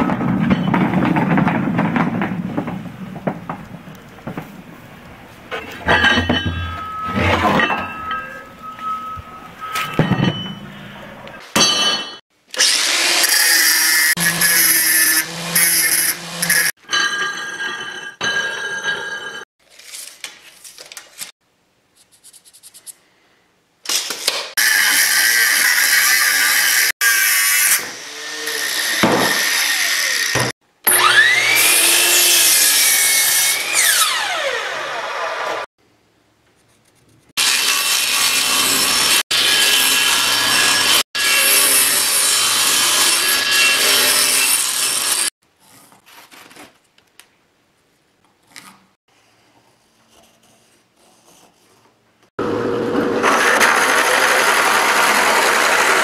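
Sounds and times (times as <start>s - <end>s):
miter saw cutting wood: 12.6s - 16.7s, 24.6s - 35.7s, 37.4s - 45.3s, 52.4s - 56.0s.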